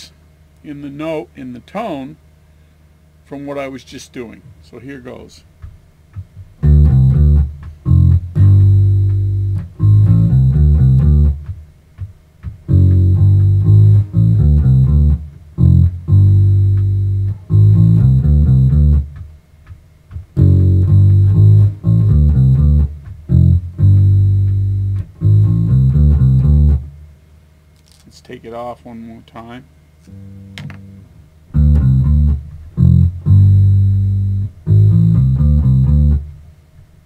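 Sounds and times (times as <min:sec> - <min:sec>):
electric bass line: 0:06.1 - 0:27.1, 0:30.0 - 0:36.5.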